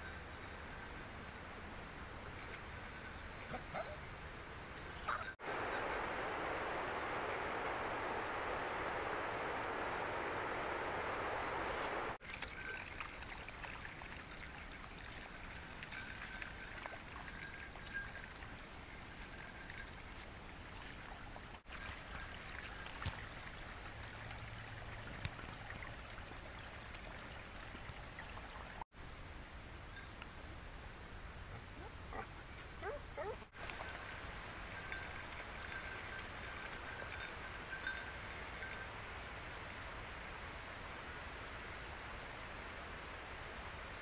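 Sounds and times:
steady outdoor hiss: 0:00.0 - 0:44.0
rushing water: 0:01.6 - 0:28.9, 0:32.9 - 0:44.0.

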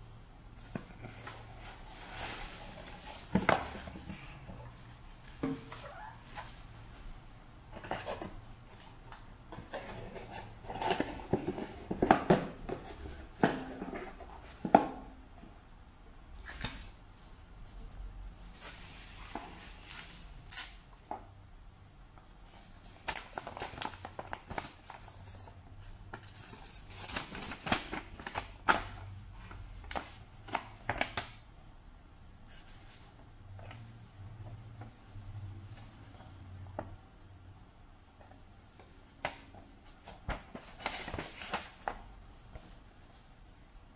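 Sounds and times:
paper sheet rustling: 0:22.5 - 0:31.2, 0:39.9 - 0:43.2.

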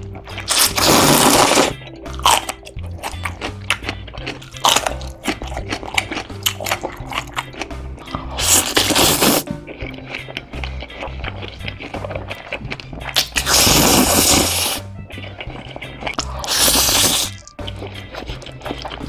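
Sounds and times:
background music with bass line: 0:00.0 - 0:19.0
crisp crunching bites and chewing: 0:00.0 - 0:19.0
noodles slurped loudly: 0:00.5 - 0:01.8, 0:08.3 - 0:10.0, 0:10.8 - 0:19.0.

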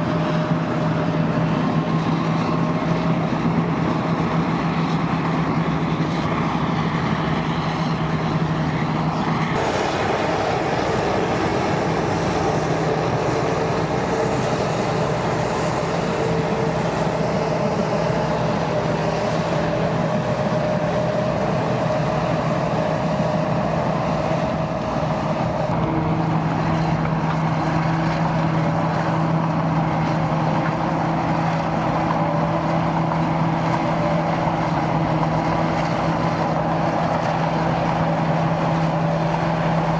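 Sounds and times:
crawler tractor diesel engine: 0:00.0 - 0:39.9.

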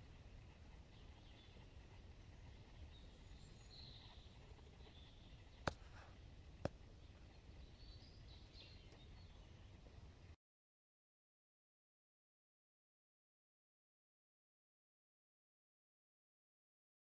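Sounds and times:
faint birdsong: 0:00.0 - 0:10.4.

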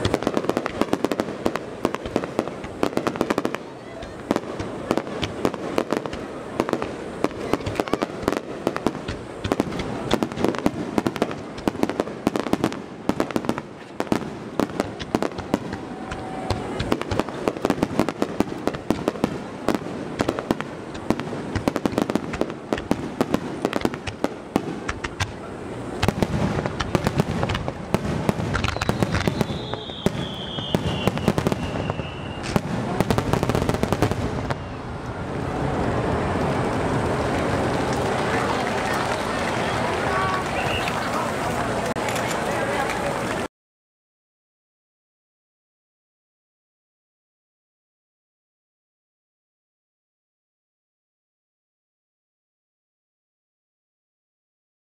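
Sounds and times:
fireworks bursts and crackling bangs: 0:00.0 - 0:43.5
falling firework whistle: 0:28.3 - 0:35.0, 0:40.1 - 0:41.1.

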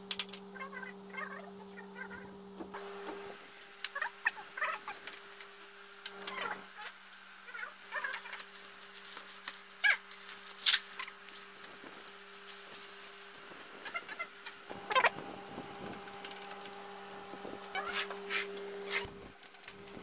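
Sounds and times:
faint steady hum: 0:00.0 - 0:20.0
plastic bags crinkling: 0:08.3 - 0:13.8
short sliding squeaks: 0:17.7 - 0:19.2.

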